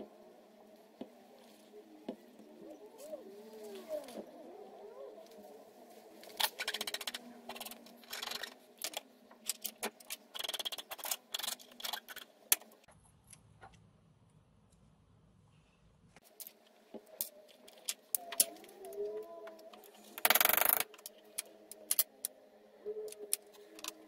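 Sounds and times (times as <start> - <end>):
rapid clicking and rustling: 6.2 - 12.9.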